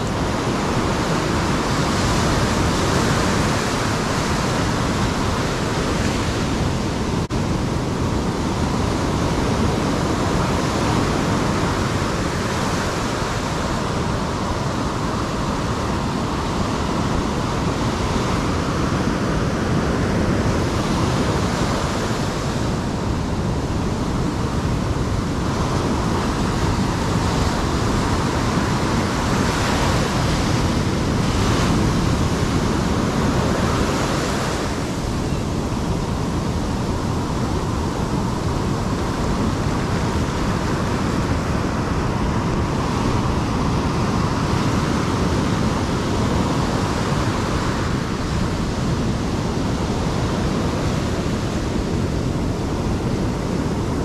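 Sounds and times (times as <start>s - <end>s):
ocean surf breaking: 0.0s - 54.0s.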